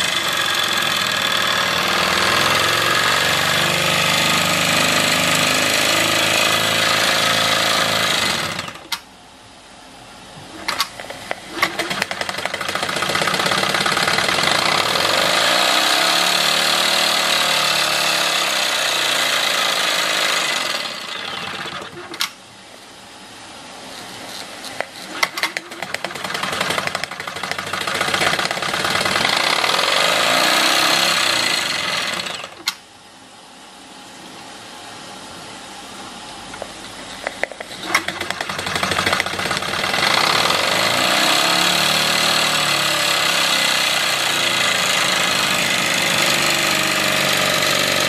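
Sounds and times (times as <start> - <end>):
model steam engine clattering: 10.6 - 14.7, 24.8 - 29.5, 37.2 - 40.3.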